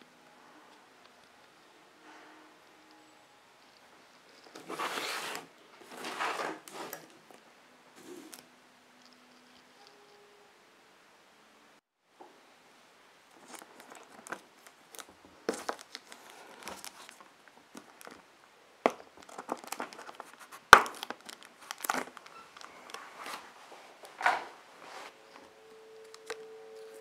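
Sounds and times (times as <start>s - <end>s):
plastic wrap crinkling: 13.3s - 18.3s, 18.9s - 24.2s, 24.8s - 27.0s.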